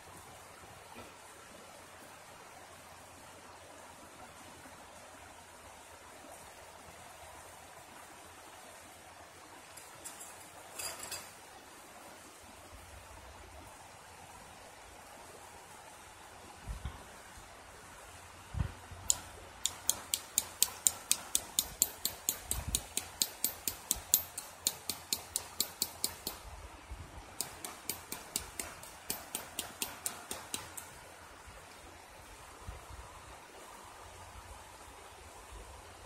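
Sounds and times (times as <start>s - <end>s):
rapid high-pitched clicks: 19.1s - 26.4s, 27.4s - 31.0s.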